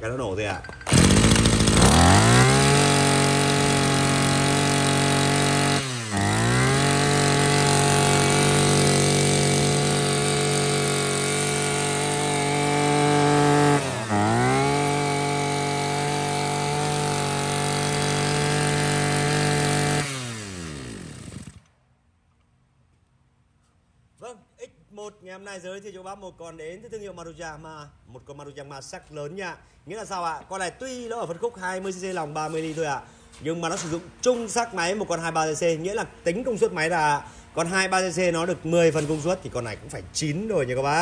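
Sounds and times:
brush cutter engine running: 0:00.6 - 0:21.7.

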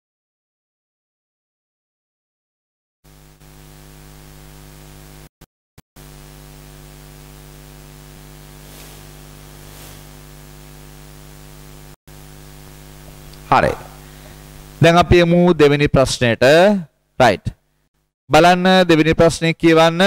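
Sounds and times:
electrical mains hum: 0:03.1 - 0:05.3, 0:06.0 - 0:20.0
microphone line hiss: 0:03.1 - 0:05.3, 0:06.0 - 0:16.6.

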